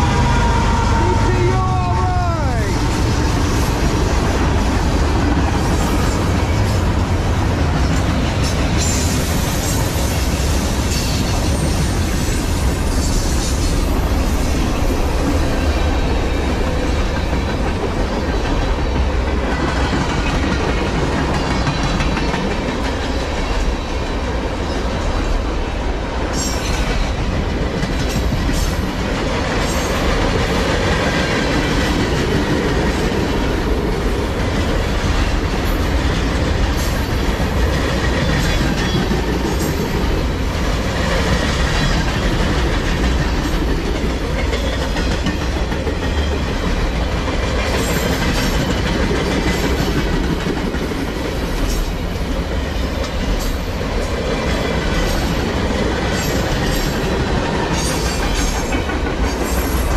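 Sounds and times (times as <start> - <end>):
freight train wheels rumbling: 0.0 - 59.9
wheels clacking over rail joints: 15.7 - 24.0, 26.3 - 59.9.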